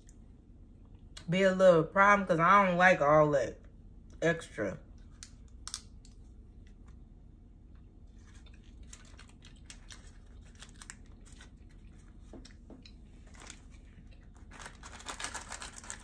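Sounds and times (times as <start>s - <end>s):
faint chewing: 7.7s - 14.6s
candy wrapper crinkling: 8.1s - 12.4s, 13.0s - 16.0s.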